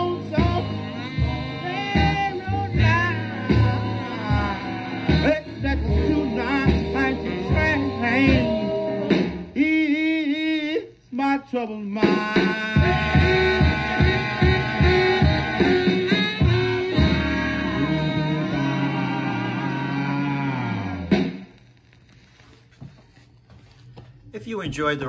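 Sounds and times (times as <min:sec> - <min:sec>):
vocal group singing with backing: 0:00.0 - 0:09.8, 0:12.0 - 0:21.1.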